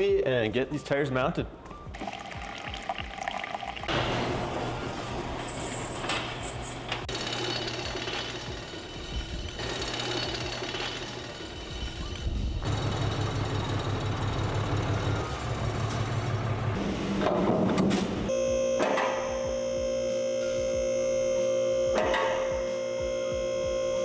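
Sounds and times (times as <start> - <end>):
coffee streaming into cup: 2.0 - 4.0.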